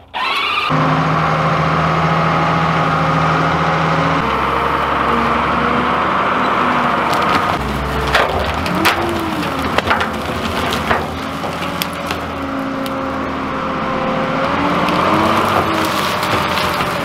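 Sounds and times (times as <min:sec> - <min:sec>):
loader engine under load: 0:00.0 - 0:17.0
branches snapping: 0:07.0 - 0:17.0.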